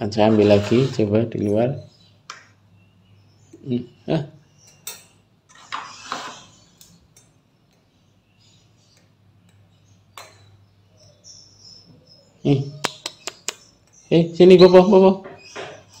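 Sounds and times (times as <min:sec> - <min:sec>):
feed tray sliding into cage: 0:00.2 - 0:01.2
metal tweezers clinking on wire cage: 0:04.7 - 0:05.2.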